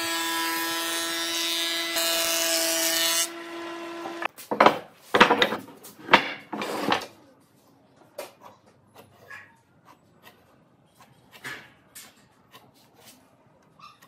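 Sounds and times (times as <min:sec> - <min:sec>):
wooden boards knocking and clattering: 0:04.5 - 0:06.6.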